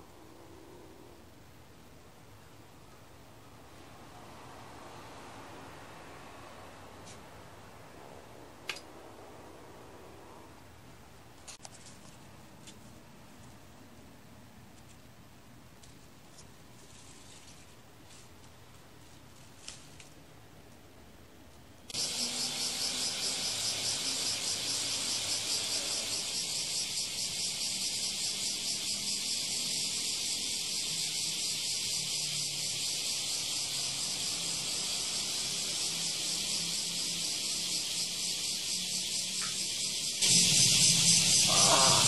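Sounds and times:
cicadas singing: 3.4s - 8.1s, 21.9s - 42.0s.

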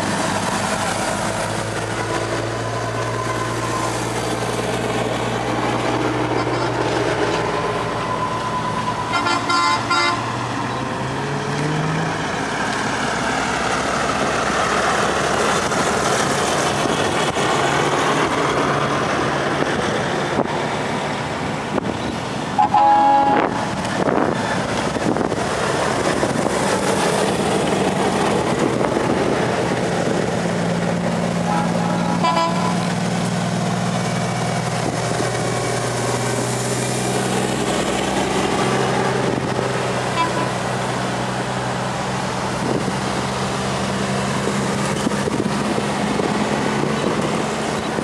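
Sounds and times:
heavy trucks driving past: 0.0s - 48.0s
long horn blast: 9.1s - 10.2s, 22.6s - 23.9s, 31.4s - 33.0s, 40.1s - 40.7s
truck horn toots: 9.1s - 10.2s, 22.6s - 23.8s, 31.4s - 32.9s, 40.1s - 40.6s.

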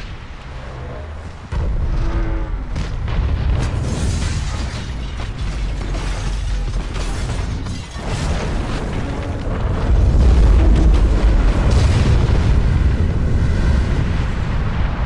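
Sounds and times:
flying debris crackling bangs: 0.0s - 15.0s
deep explosion booms: 1.5s - 4.7s, 8.0s - 15.0s.

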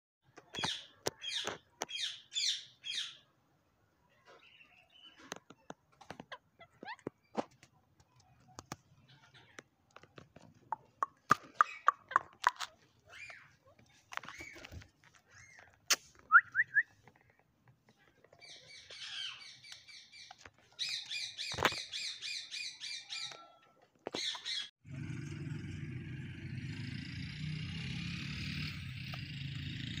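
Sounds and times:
parakeets squawking and chattering: 8.7s - 9.8s, 11.1s - 15.8s, 18.4s - 23.4s, 24.1s - 24.7s.

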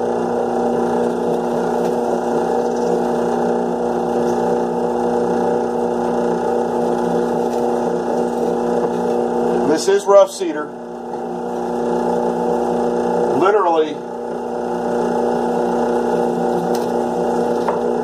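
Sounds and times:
drill press motor hum: 0.0s - 18.0s.

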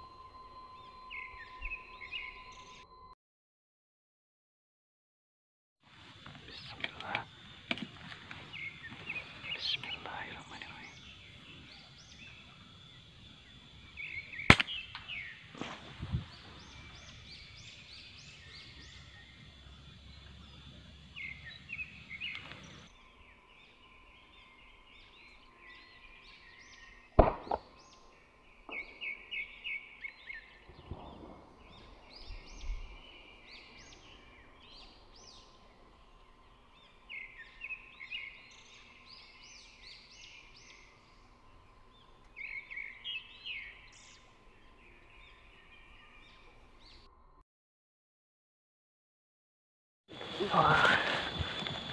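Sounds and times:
small birds chirping: 0.0s - 3.0s, 5.9s - 47.1s, 50.1s - 51.9s
sharp clicks: 14.5s - 15.1s.

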